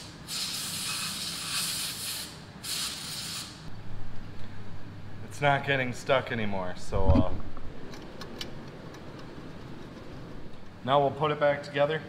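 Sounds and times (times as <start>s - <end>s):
aerosol spray hissing: 0.0s - 3.6s.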